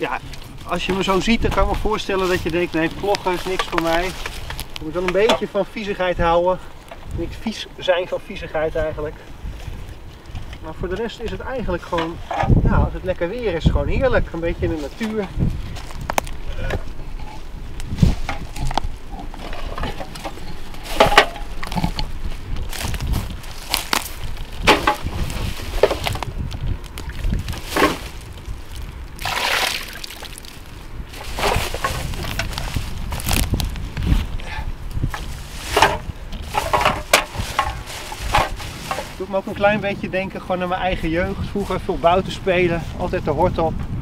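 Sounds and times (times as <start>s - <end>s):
plastic bin bag rustling: 0.0s - 5.8s, 14.7s - 34.3s, 35.0s - 39.7s
dry reed stalks crackling: 0.0s - 43.2s.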